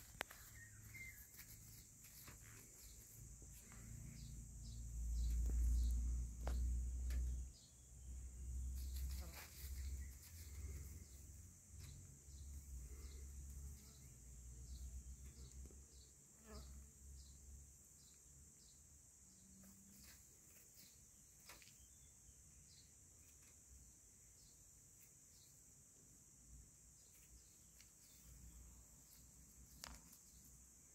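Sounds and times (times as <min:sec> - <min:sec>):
rustles of dry grass: 0:00.0 - 0:04.0, 0:08.7 - 0:11.2
insects chirring: 0:00.0 - 0:30.9.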